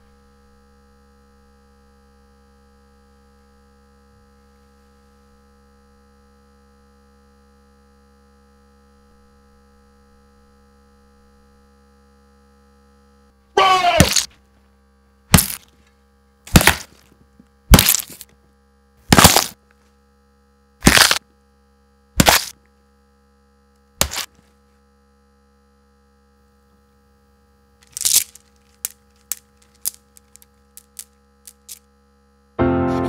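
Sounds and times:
electrical hum: 0.0 - 33.0
sharp cracking hits: 16.5 - 17.0, 17.7 - 18.2, 19.1 - 19.6.

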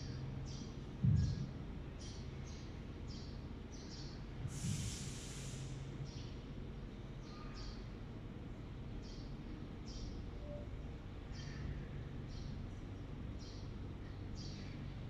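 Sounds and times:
steady low hum: 0.0 - 15.0
long loud hiss: 4.5 - 5.9
milking machine air puffs: 4.5 - 5.9.

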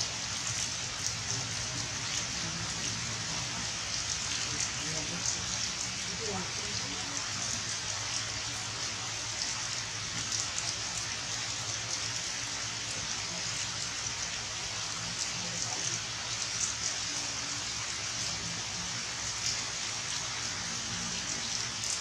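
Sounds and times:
rain on leaves and rocks: 0.0 - 22.0
raindrop ticks: 0.4 - 8.3, 21.2 - 22.0.

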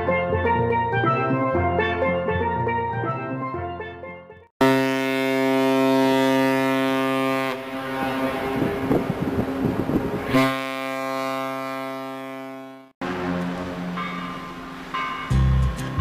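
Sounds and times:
ship horn blasts: 4.6 - 14.9
wind noise: 8.0 - 10.5.

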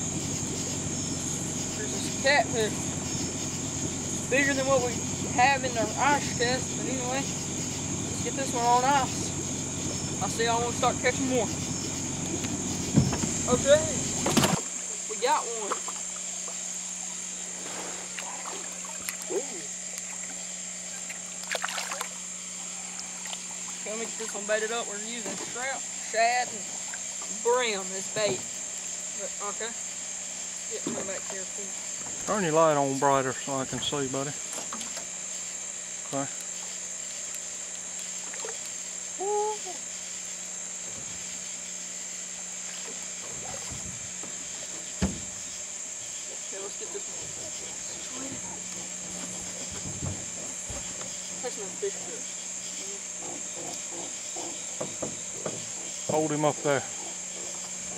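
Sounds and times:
low hum: 0.0 - 25.2
high-pitched insect chorus: 0.0 - 57.9
fish splashing at water surface: 15.6 - 23.9.

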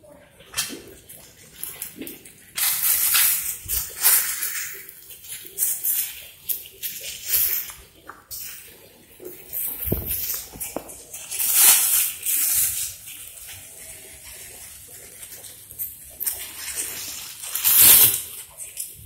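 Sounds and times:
plastic bags crinkling: 0.9 - 19.0
leaves rustling: 9.5 - 18.8.

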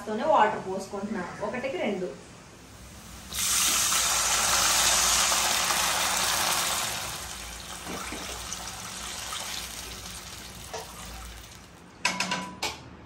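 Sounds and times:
water sizzling in hot oil: 2.7 - 11.8.

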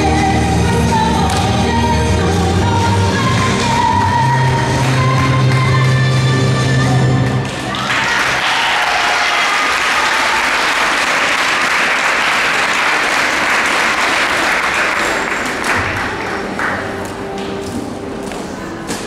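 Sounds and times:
backing music: 0.0 - 7.8
audience applause: 7.7 - 16.9.

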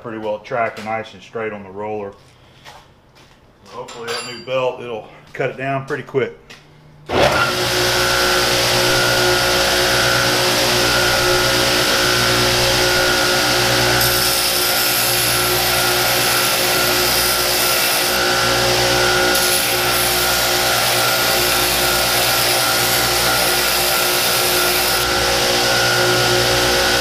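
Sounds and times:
belt sander grinding metal: 7.1 - 27.0.

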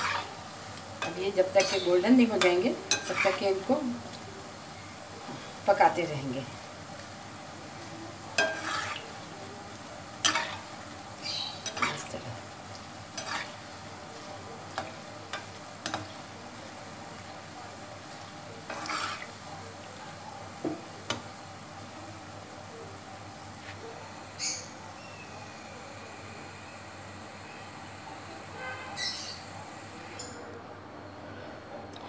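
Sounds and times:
metal spoon scraping pan: 0.0 - 0.3, 1.0 - 3.6, 8.4 - 9.1, 10.2 - 10.7, 11.6 - 12.2, 13.2 - 13.7, 18.7 - 19.3
food sizzling in hot oil: 0.0 - 30.4.

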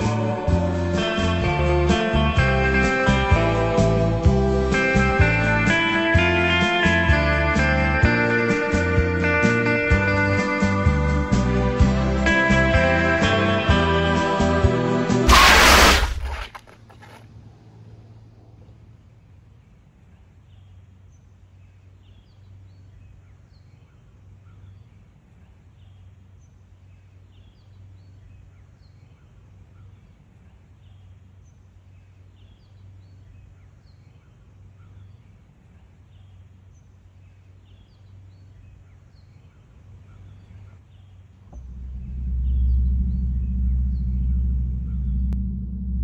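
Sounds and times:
steady low hum: 41.6 - 46.0.

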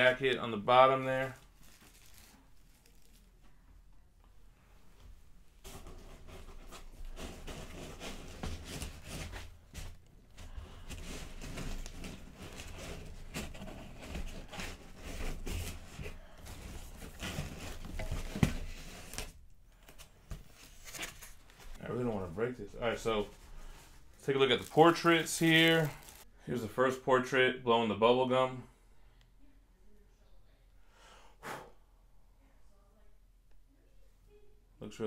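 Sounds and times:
packing rustling and scraping: 1.3 - 3.4, 5.6 - 26.3.

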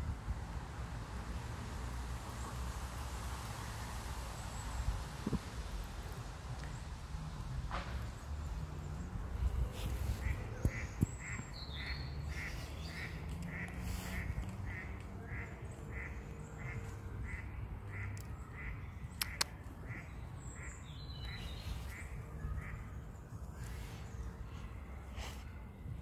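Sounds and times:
sharp clicks: 19.2 - 19.6.

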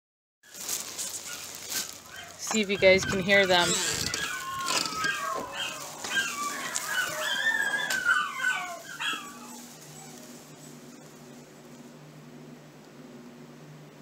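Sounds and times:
dogs howling: 0.5 - 11.6
faint steady hum: 0.5 - 14.0.

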